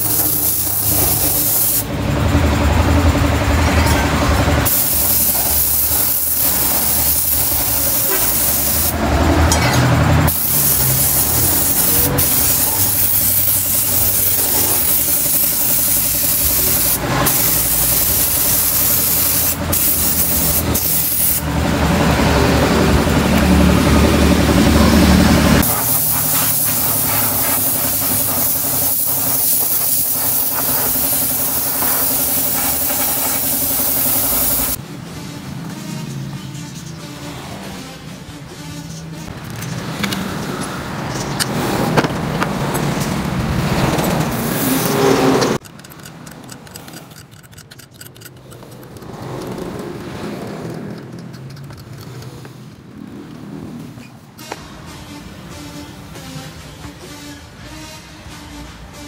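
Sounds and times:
spray gun hissing: 0:00.0 - 0:01.9, 0:04.6 - 0:09.0, 0:10.3 - 0:21.5, 0:25.6 - 0:34.8.

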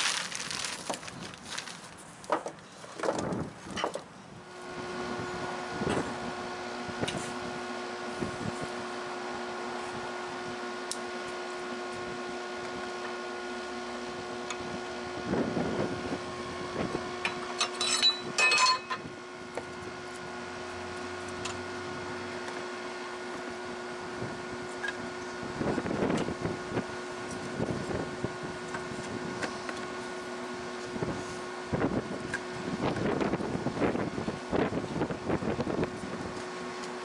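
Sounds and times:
blower fan humming: 0:00.0 - 0:37.0
metal clinks and knocks: 0:17.6 - 0:19.0.

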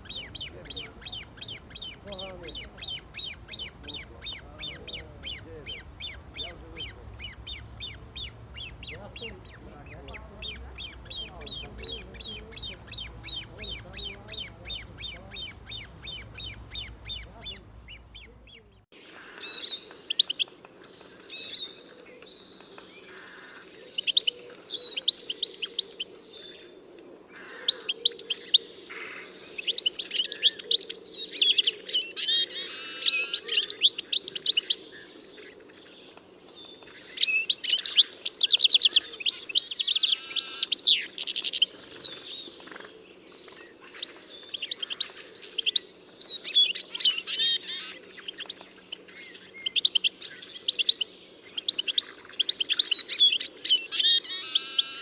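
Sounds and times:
faint low hum: 0:00.0 - 0:18.9
songbirds chirping: 0:00.0 - 0:55.0.

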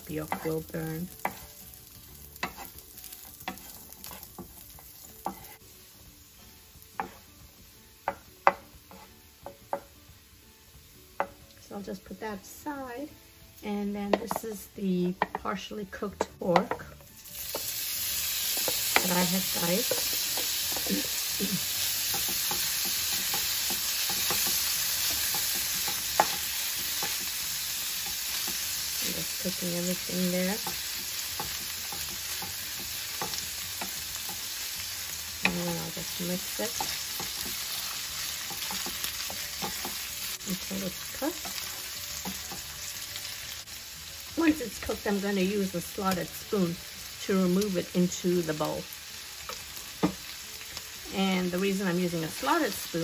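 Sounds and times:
faint sizzle: 0:00.0 - 0:53.0
wooden spoon scraping a pan: 0:02.3 - 0:05.6, 0:08.9 - 0:09.2
wooden spatula scraping pan: 0:08.9 - 0:09.1.

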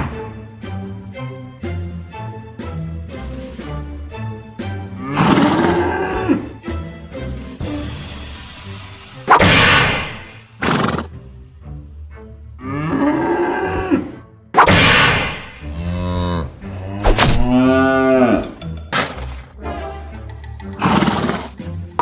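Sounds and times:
cow mooing: 0:05.0 - 0:06.5, 0:12.6 - 0:14.2, 0:15.6 - 0:18.6.

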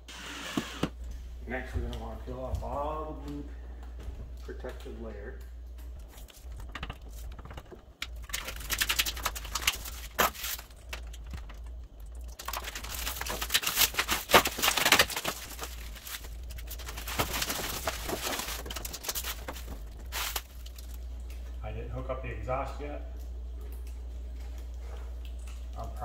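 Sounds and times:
plastic film peeling and crinkling: 0:05.8 - 0:21.3.

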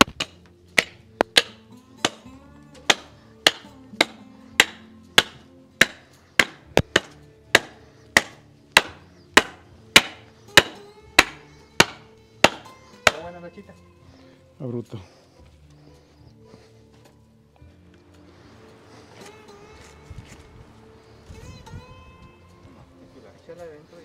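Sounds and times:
blade chopping through bone: 0:00.0 - 0:02.2, 0:02.8 - 0:13.2.

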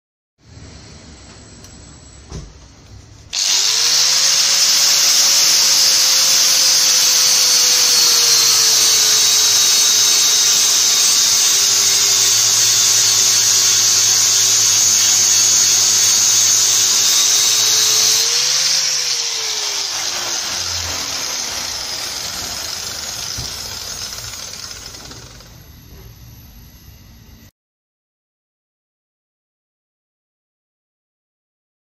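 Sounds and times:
grinder winding down: 0:03.3 - 0:25.6
angle grinder grinding steel: 0:03.4 - 0:25.5.

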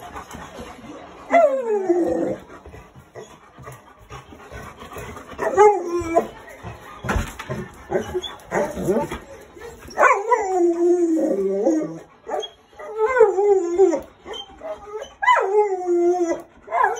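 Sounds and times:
dog howling: 0:10.0 - 0:16.9.

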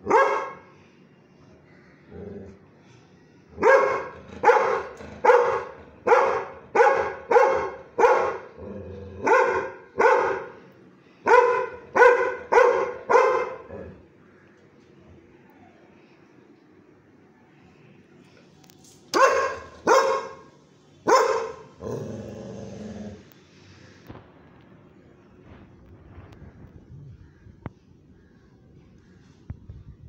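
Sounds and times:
dog barking: 0:00.0 - 0:00.6, 0:03.6 - 0:08.6, 0:09.2 - 0:10.6, 0:11.2 - 0:13.7, 0:19.1 - 0:21.7.

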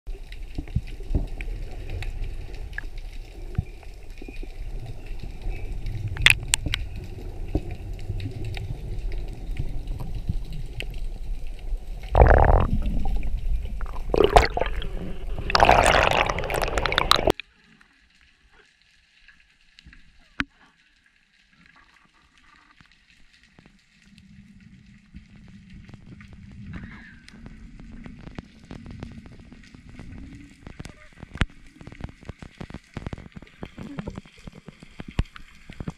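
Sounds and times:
muffled underwater rumble: 0:00.1 - 0:17.4, 0:23.6 - 0:35.9
rushing bursts of water: 0:04.6 - 0:17.3.

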